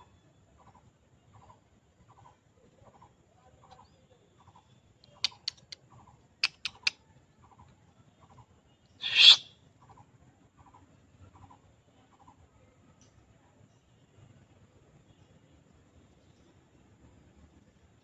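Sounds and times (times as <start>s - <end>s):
faint chirping call: 0.0s - 12.4s
sharp clicks: 5.0s - 5.8s, 6.4s - 7.0s
harsh hissy screech: 9.0s - 9.5s.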